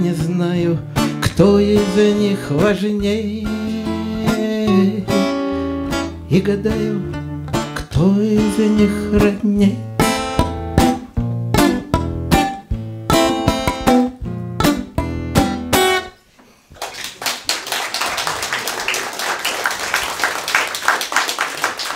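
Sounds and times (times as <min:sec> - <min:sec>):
acoustic guitar chords: 0:00.0 - 0:16.2
audience applause: 0:16.8 - 0:21.9.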